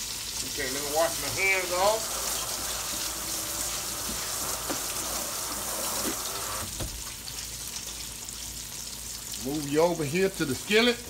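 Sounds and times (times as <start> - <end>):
oil frying in skillet: 0.0 - 11.0
tap running over hands: 4.0 - 5.0.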